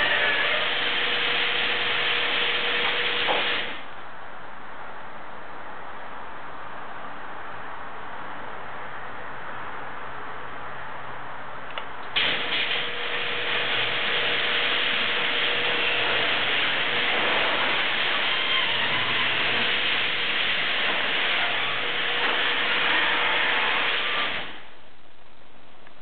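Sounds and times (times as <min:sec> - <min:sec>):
garage door opener whirring: 0:00.0 - 0:03.9, 0:12.2 - 0:24.8.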